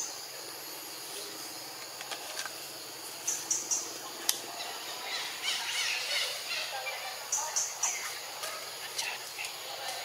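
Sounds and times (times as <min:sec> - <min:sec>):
steady high hiss: 0:00.0 - 0:10.0.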